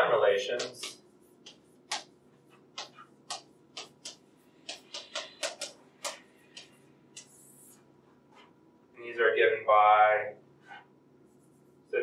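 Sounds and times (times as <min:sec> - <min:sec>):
chalk tapping and scraping on blackboard: 0:00.5 - 0:08.6.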